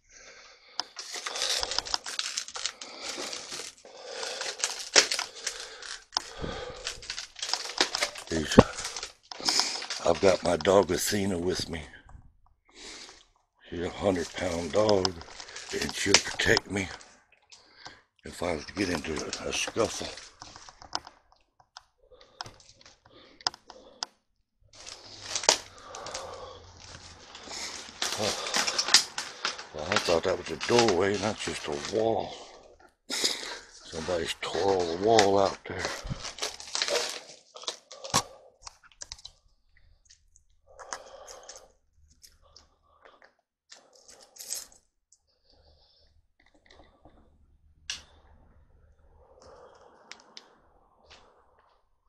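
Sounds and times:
sharp cracks and clicks: 0.8 - 10.9, 14.2 - 24.2, 24.8 - 26.3, 27.3 - 39.4
rustling: 0.9 - 11.2, 14.0 - 17.1, 24.8 - 38.4
footsteps crunching over rubble: 4.5 - 11.6, 13.8 - 17.0, 24.8 - 32.8, 33.5 - 37.9.

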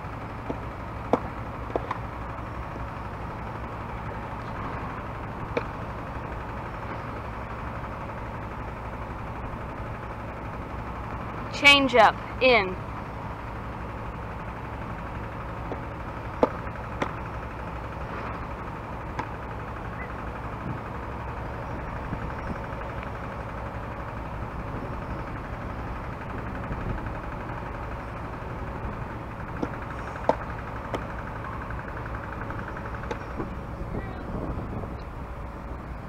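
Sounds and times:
low mechanical hum: 0.0 - 36.0.

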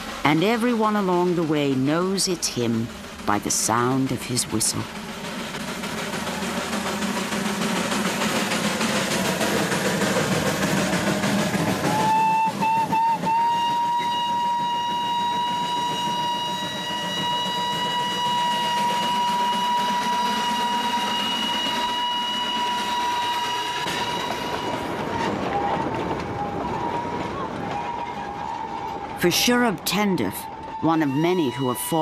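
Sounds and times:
moving train running noise: 0.0 - 32.0
steam locomotive whistle: 9.6 - 32.0.

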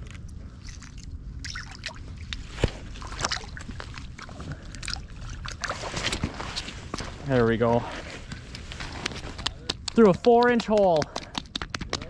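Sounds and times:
water sloshing and splashing: 0.0 - 7.2
steady low rumble: 0.0 - 11.2
sharp clicks and knocks: 9.0 - 12.0.

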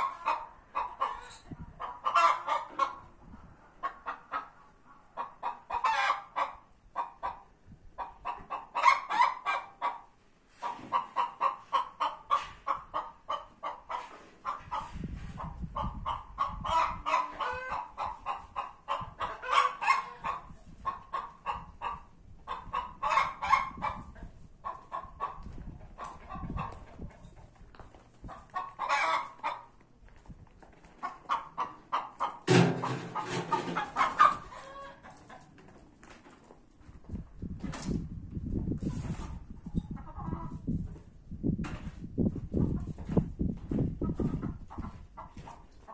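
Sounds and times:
hens clucking: 0.0 - 29.8, 30.9 - 35.8, 38.9 - 40.7, 44.0 - 45.9
hen drawn-out calls: 16.4 - 24.0.

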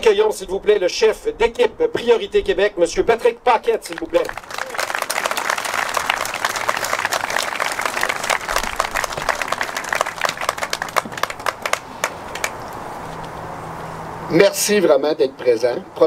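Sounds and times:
crowd applauding: 3.9 - 12.7.

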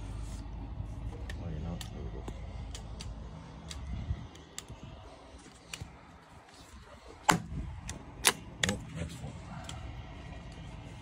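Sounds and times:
nail gun shot: 7.3 - 7.5.

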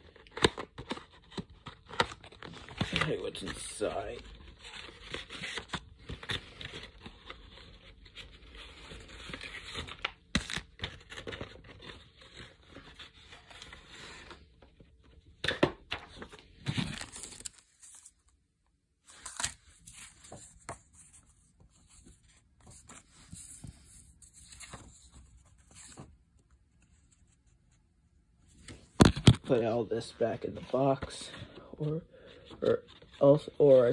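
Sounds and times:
packaging rustling: 16.2 - 18.2
paper sheets rustling: 19.1 - 27.4.

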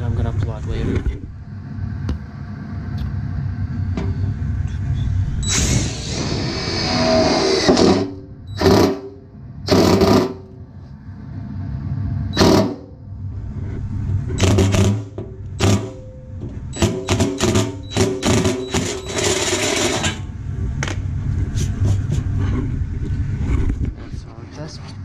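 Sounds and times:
drill bit screeching through metal: 5.4 - 8.7, 16.8 - 20.2.

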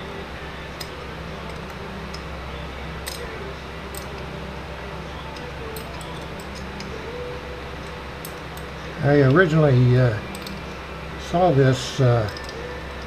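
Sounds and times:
steady low hum: 0.0 - 13.0
wrench metallic clicks: 3.0 - 3.3, 3.9 - 4.3, 5.3 - 7.0, 10.2 - 10.7, 12.2 - 13.0.

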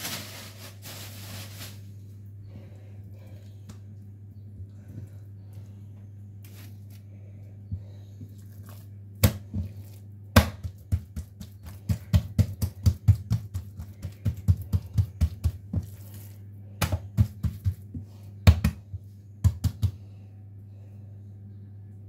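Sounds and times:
steady low hum: 0.0 - 22.0
hands slapping dough: 8.5 - 20.0.

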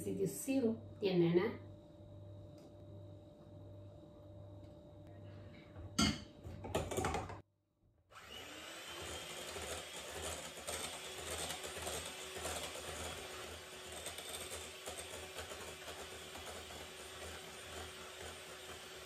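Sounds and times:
electric hand mixer whisking batter: 8.1 - 19.0.

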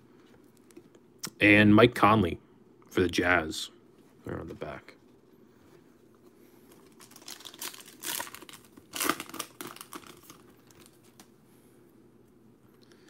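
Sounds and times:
foil wrapper tearing and crinkling: 6.8 - 11.3.

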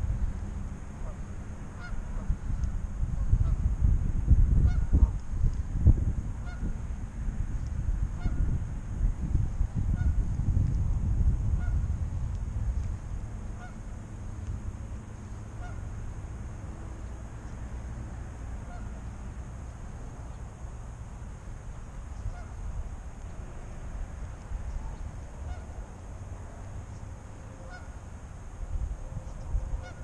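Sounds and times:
gusting low rumble: 0.0 - 30.0
goose honking: 1.8 - 2.2, 6.4 - 6.6, 13.6 - 13.8, 15.6 - 15.8, 18.6 - 19.0, 22.3 - 22.6, 24.9 - 25.8, 27.6 - 27.9, 29.8 - 30.0.

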